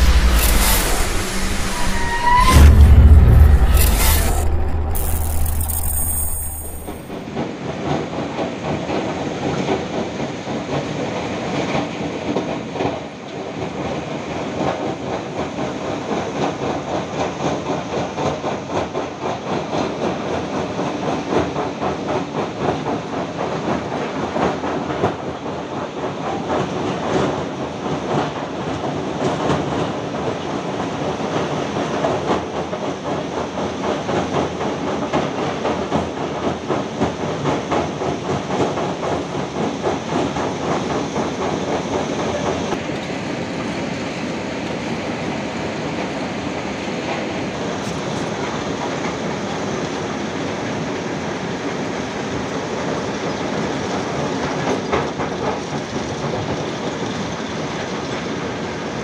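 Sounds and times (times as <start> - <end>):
construction machinery engine drone: 0.0 - 7.2.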